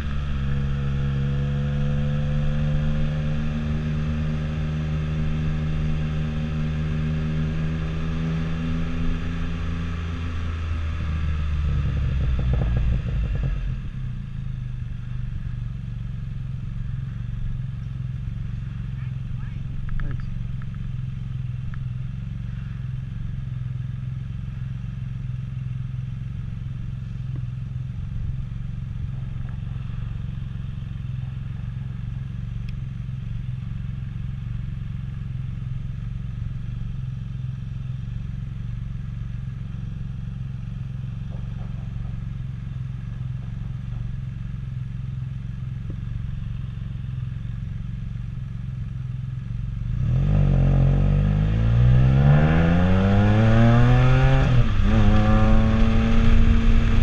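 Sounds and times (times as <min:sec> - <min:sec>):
motorcycle engine idling: 0:09.0 - 0:50.0.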